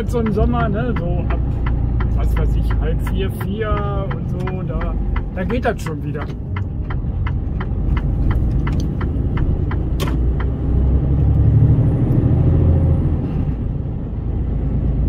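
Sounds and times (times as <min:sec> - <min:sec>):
regular ticking: 0:00.0 - 0:11.5
road noise: 0:00.0 - 0:15.0
truck diesel engine rumble: 0:00.0 - 0:15.0.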